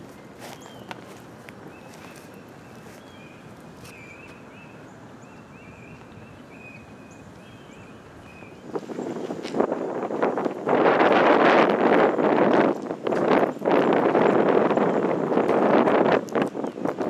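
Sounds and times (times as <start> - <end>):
small bird chirping: 0.4 - 1.1, 1.7 - 8.7.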